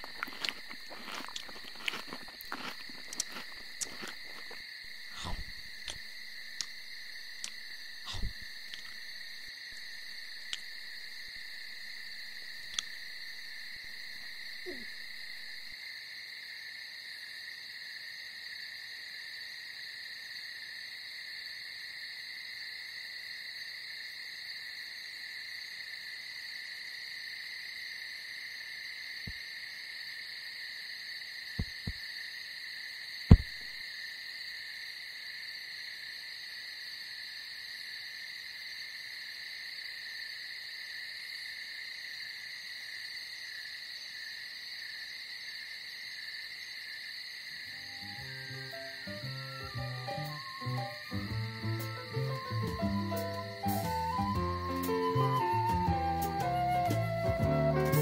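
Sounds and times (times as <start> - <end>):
cartoon chewing and crunching: 0.0 - 10.9, 12.5 - 13.1.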